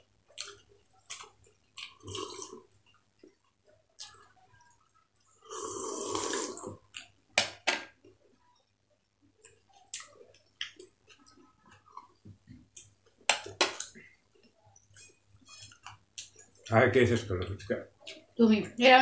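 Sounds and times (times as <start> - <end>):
small clicks of eating: 0.2 - 2.0, 2.6 - 5.4, 7.9 - 16.8
loud slurp of water: 5.5 - 6.8.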